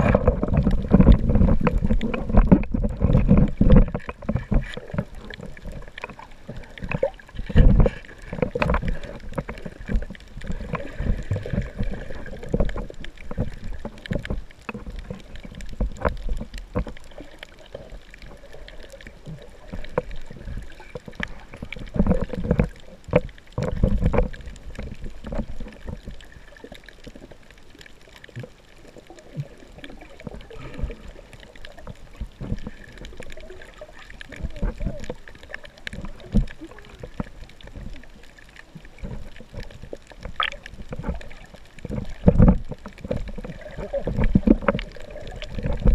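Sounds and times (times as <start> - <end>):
low underwater thuds: 0.0 - 17.0
muffled underwater sloshing: 0.0 - 45.9.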